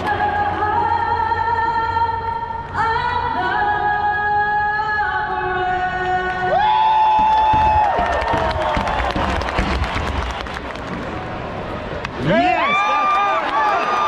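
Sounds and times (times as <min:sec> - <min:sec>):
woman singing over loudspeakers: 0:00.0 - 0:06.9.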